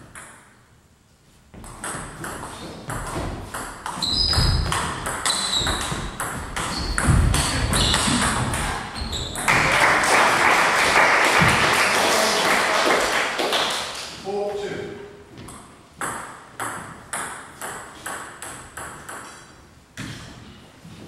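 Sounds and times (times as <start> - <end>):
spectators applauding: 9.5 - 14.2.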